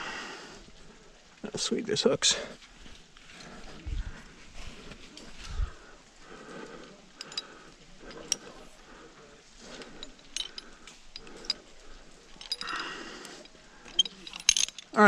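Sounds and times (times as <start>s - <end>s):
person breathing heavily: 0.0s - 1.1s, 3.4s - 14.7s
carabiners clicking and clinking: 7.1s - 8.8s, 9.6s - 15.0s.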